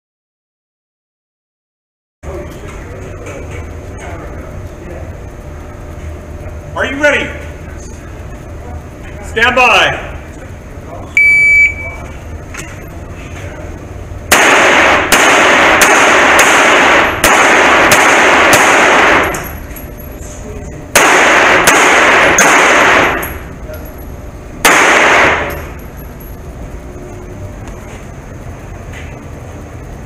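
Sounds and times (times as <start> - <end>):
pistol shots echoing indoors: 14.3 - 19.6, 20.9 - 23.5, 24.6 - 25.8.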